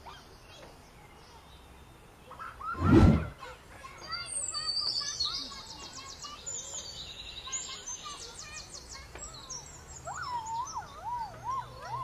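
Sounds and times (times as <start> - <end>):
songbirds chirping and trilling: 0.0 - 12.0
whistled bird phrase: 4.2 - 12.0.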